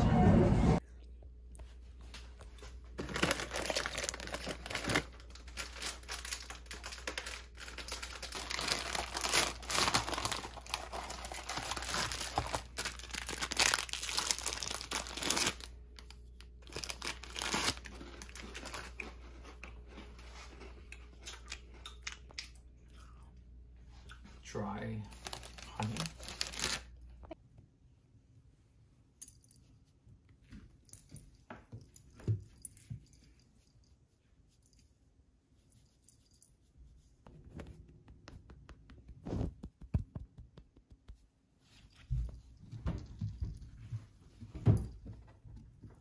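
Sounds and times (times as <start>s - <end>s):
plastic packaging crinkling: 2.9s - 19.4s, 25.1s - 27.0s.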